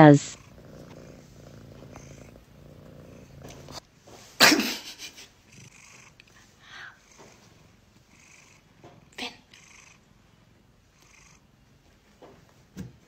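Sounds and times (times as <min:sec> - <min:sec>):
cat purring: 0:00.0 - 0:03.9, 0:05.3 - 0:11.7.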